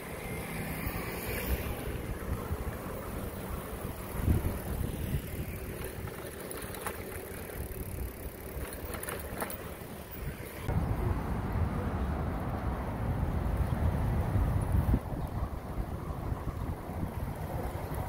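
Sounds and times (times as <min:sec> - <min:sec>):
wind rumble on microphone: 0:00.8 - 0:07.0, 0:10.2 - 0:18.0
bicycle clicks and rattles: 0:02.1 - 0:10.7.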